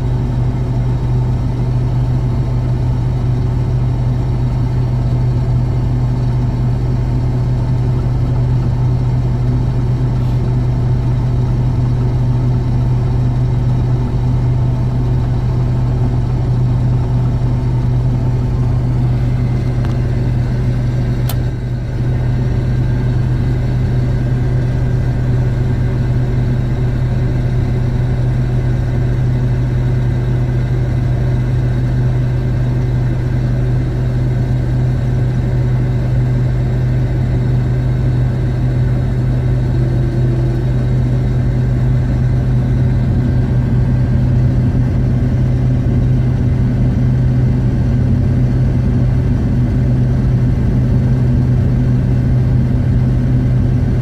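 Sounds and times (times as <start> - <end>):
combine harvester engine and auger: 0.0 - 54.0
brief click: 21.2 - 21.5.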